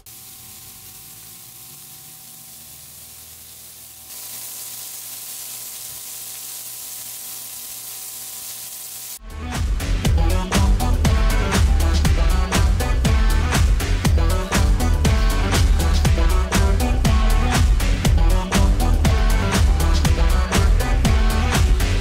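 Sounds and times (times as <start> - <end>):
burger patties sizzling on griddle: 0.0 - 9.2.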